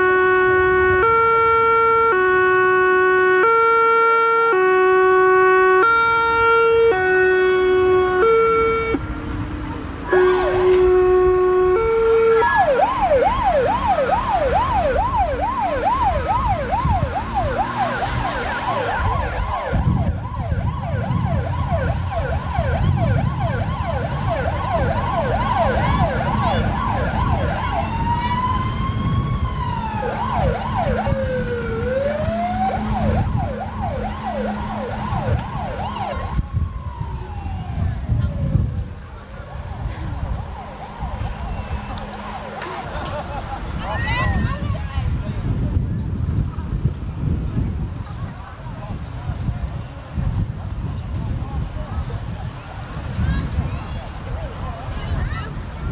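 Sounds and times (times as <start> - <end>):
two-tone horn: 0.0 - 20.0, 29.9 - 36.4, 39.8 - 43.8
electronic siren yelping and wailing: 10.1 - 38.6.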